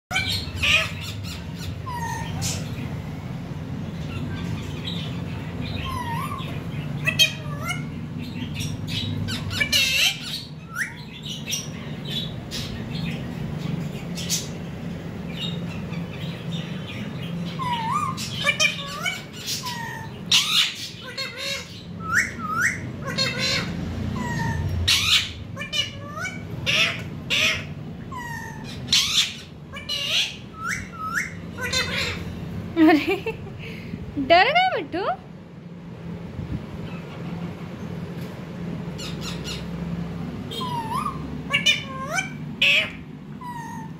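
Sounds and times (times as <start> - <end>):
parakeets squawking: 0.1 - 35.2, 36.1 - 43.9.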